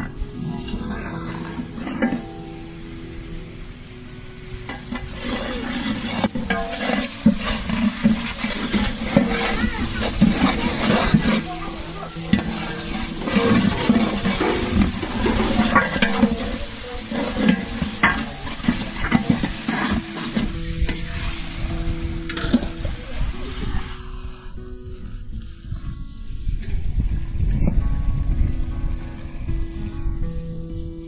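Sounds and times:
food sizzling in a pot: 0.0s - 31.0s
spoon scraping and knocking pan: 4.7s - 21.4s.

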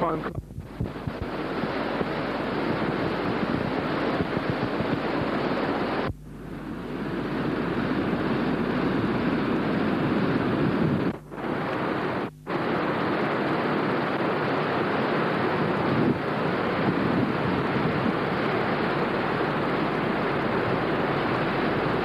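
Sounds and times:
waterfall rushing: 1.0s - 6.1s, 11.3s - 22.0s.

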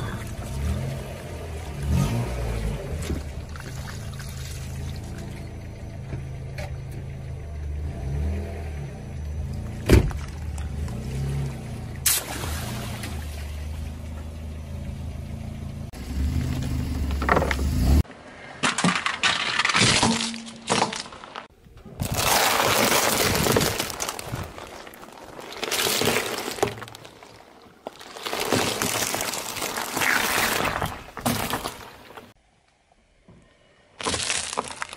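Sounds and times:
eggs cracking under car tyre: 18.6s - 32.4s, 34.0s - 34.9s.

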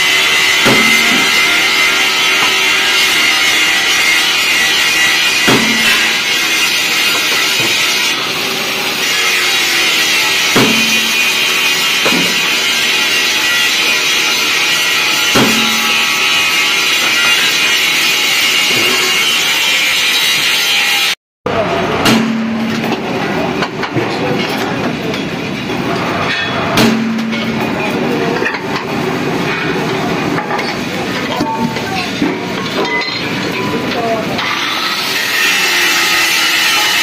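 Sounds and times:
heavy drilling machine running: 0.0s - 26.2s, 34.3s - 37.0s
sharp metal clanks: 0.3s - 8.2s, 9.0s - 20.7s, 22.0s - 34.6s.

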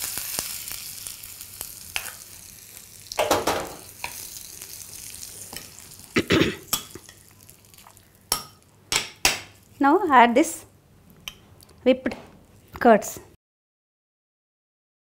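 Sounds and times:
hot oil sizzling: 0.0s - 9.8s.

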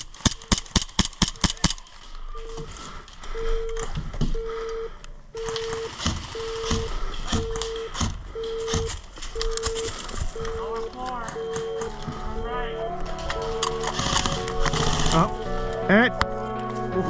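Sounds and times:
short mid-pitched beeps: 2.3s - 2.7s, 3.3s - 16.1s.

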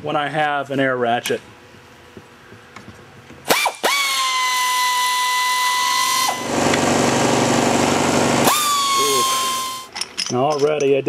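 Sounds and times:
pneumatic air ratchet running: 3.5s - 10.1s.

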